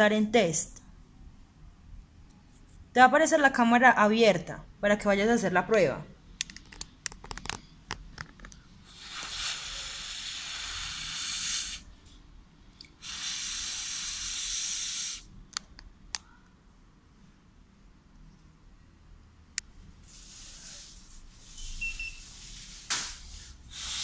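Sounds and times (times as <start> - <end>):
person blowing into breathalyzer: 8.9 - 11.9, 13.0 - 15.3, 23.7 - 24.0.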